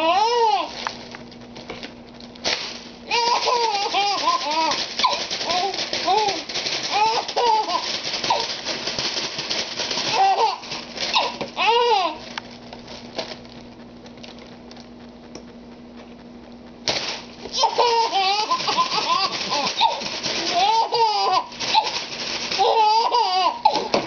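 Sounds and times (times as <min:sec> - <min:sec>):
baby giggling: 0:03.1 - 0:08.4, 0:17.5 - 0:22.0, 0:22.6 - 0:24.0.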